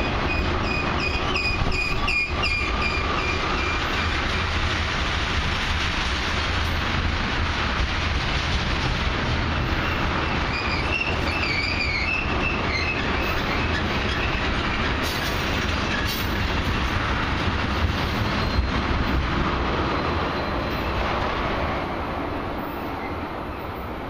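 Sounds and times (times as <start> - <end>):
freight train rumbling on rails: 0.0 - 24.0
wheel squeals: 0.3 - 4.2, 9.8 - 16.3, 18.2 - 18.8.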